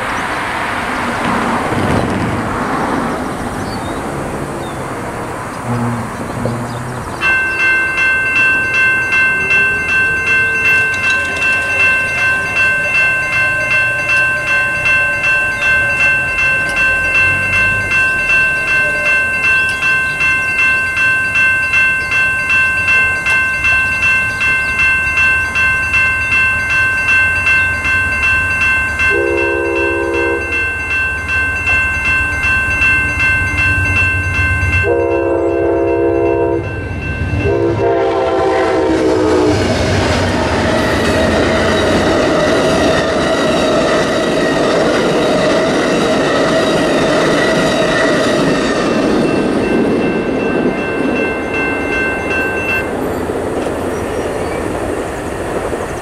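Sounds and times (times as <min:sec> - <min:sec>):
crossing warning bell ringing: 0:00.0 - 0:56.0
train low rumble: 0:00.0 - 0:56.0
train horn blasts: 0:05.5 - 0:07.8, 0:29.1 - 0:30.7, 0:34.8 - 0:36.8, 0:37.4 - 0:39.8.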